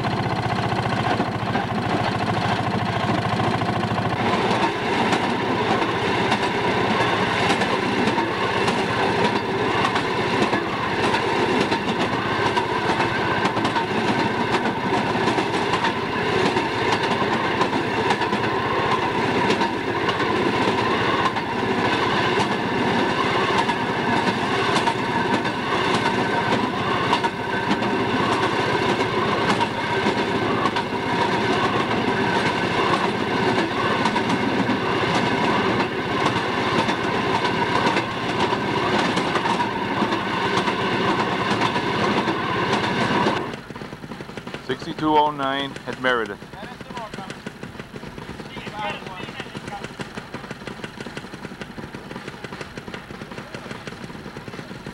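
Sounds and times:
wheels clicking over rail joints: 0.0s - 54.9s
engine droning: 42.8s - 54.9s.

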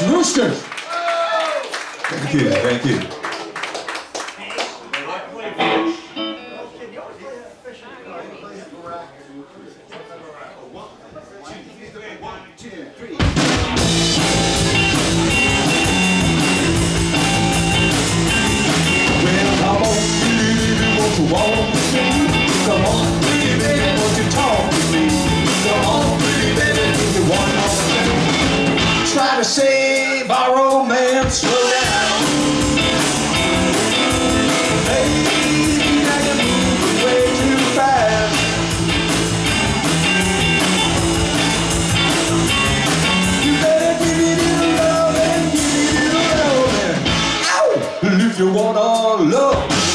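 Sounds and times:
electric guitar line: 5.5s - 6.8s, 13.4s - 29.4s, 31.3s - 49.9s
live rock band playing: 5.5s - 6.8s, 13.2s - 49.9s.

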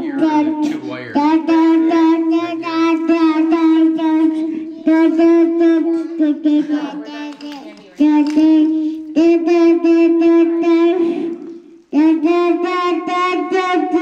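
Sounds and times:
toddler singing into a microphone: 0.0s - 14.0s.

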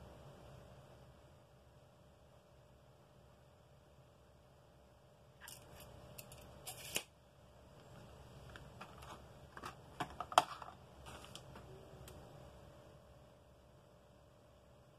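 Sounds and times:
tape measure blade retracting: 6.3s - 7.1s.

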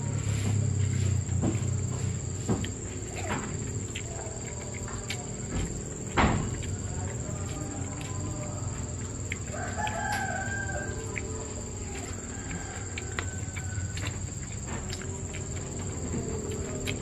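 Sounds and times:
rooster crowing: 6.6s - 15.4s.

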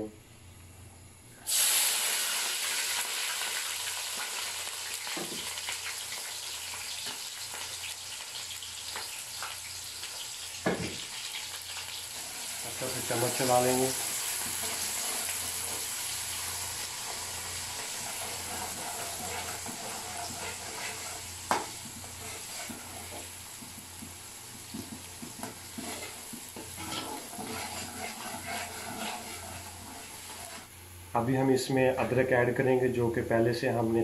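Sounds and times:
onions sizzling in oil: 1.4s - 31.1s
ladle scraping pot: 18.0s - 21.3s, 25.4s - 30.7s.

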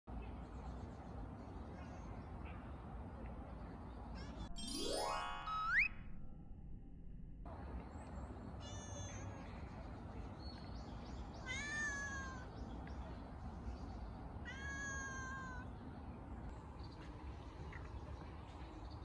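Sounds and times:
cat meowing: 11.4s - 12.5s, 14.4s - 15.7s.

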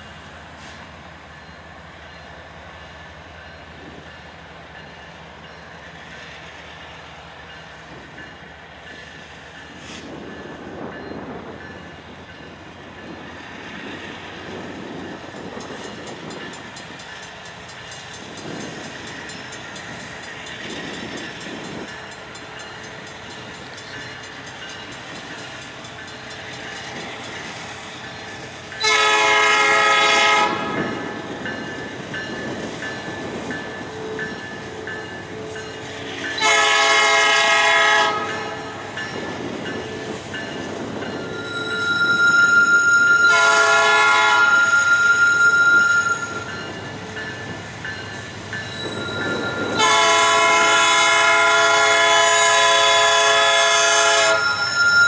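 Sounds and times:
train rumble: 0.0s - 55.0s
locomotive air horn blasts: 28.8s - 31.0s, 36.4s - 38.8s, 42.3s - 46.4s, 49.7s - 54.6s.

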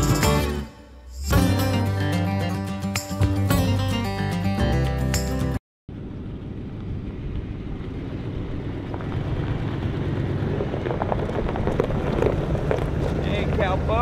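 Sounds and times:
pickup truck engine running: 5.9s - 14.0s
tyres crackling on gravel: 6.8s - 14.0s.

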